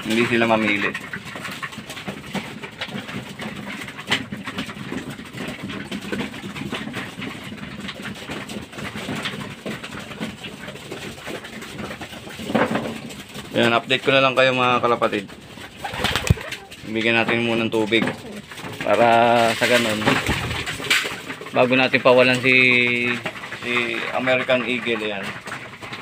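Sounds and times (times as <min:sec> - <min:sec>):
pigeons pecking seed: 0:00.0 - 0:26.0
pigeon cooing: 0:15.3 - 0:24.4.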